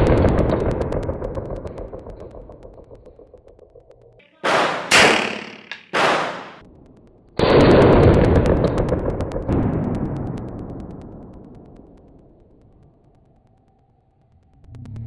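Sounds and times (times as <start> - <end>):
pistol shots: 4.4 - 6.6.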